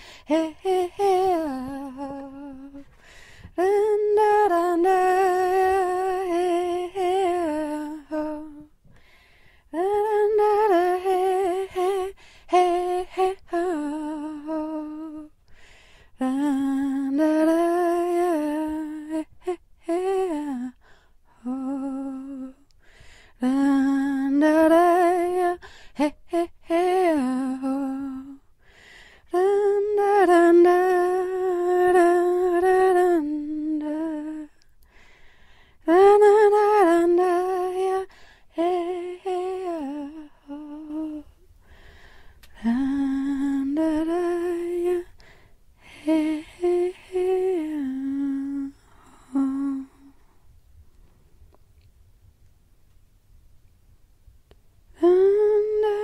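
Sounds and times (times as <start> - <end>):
person humming a slow melody: 0.0 - 8.8, 16.2 - 28.7, 35.8 - 41.8, 42.4 - 50.3, 54.9 - 56.0.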